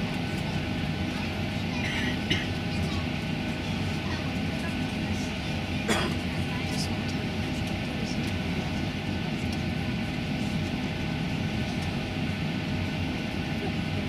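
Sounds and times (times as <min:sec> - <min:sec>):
aircraft cabin air hum: 0:00.0 - 0:14.0.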